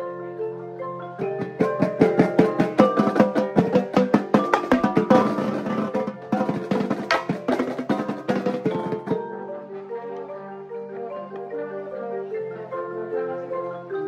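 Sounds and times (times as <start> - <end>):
marimbas playing notes: 0.0 - 14.0
drums playing fast patterns: 1.2 - 9.2.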